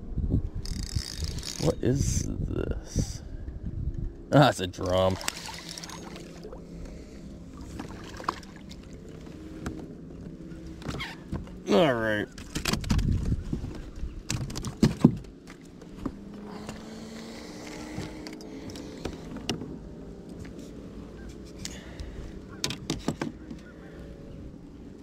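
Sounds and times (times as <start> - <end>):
faint steady hum: 0.0 - 11.7
clicks and knocks in plastic kayak: 12.3 - 13.4, 14.2 - 16.8, 22.6 - 23.6.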